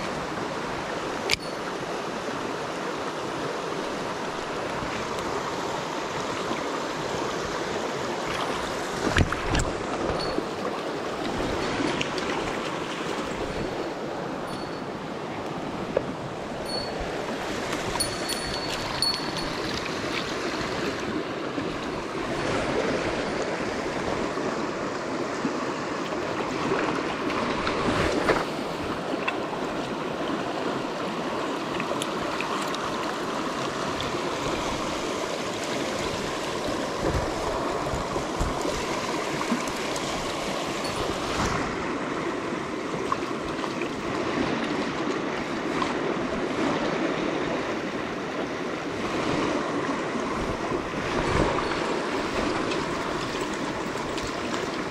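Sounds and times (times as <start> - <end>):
stream running over rocks: 0.0 - 54.9
knocks and splashes: 8.2 - 10.6.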